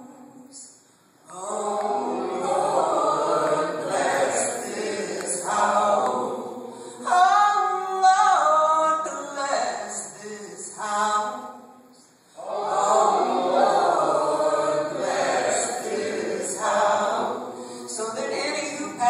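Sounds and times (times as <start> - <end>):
choir singing: 1.3 - 6.8, 12.4 - 18.4.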